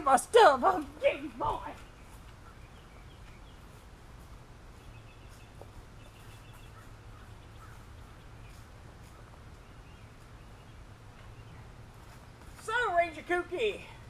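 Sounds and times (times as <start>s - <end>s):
low steady hum: 0.0s - 14.0s
bird chirps: 1.7s - 4.0s, 4.7s - 11.8s.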